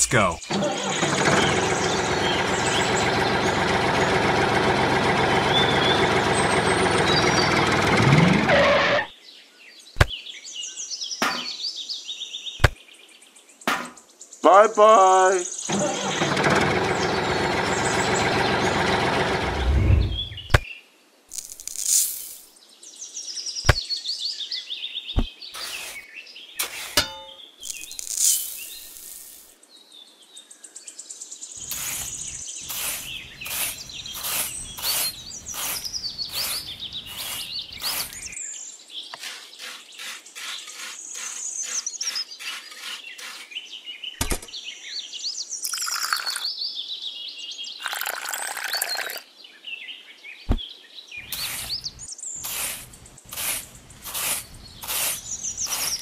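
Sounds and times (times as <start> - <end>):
small birds chirping: 0.0 - 7.8, 9.1 - 20.9, 22.4 - 56.0
small shovel scraping soil: 21.3 - 22.5, 25.2 - 29.5, 31.6 - 38.4, 39.1 - 43.7, 51.2 - 56.0
water pouring onto powder: 45.7 - 46.4, 47.8 - 49.2, 52.4 - 56.0.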